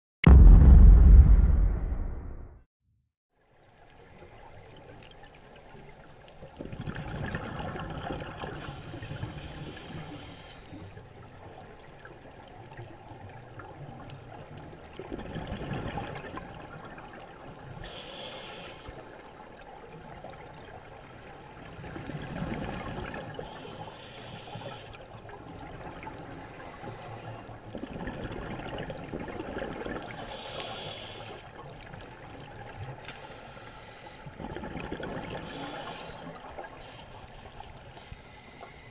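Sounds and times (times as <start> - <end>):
underwater bubbles rushing: 6.5 - 8.8, 11.4 - 17.7, 19.5 - 23.6, 25.1 - 30.3, 34.3 - 37.0.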